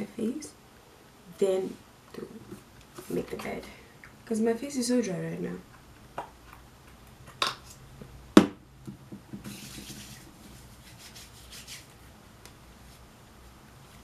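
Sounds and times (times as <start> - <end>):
palms rubbing lotion: 9.4 - 12.0.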